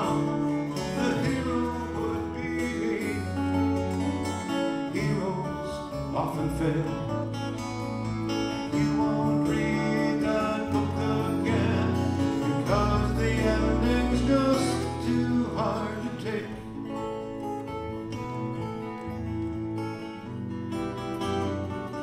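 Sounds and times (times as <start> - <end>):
electric bass long low notes: 0.0 - 22.0
slide dobro: 0.0 - 22.0
strummed acoustic guitars: 0.0 - 22.0.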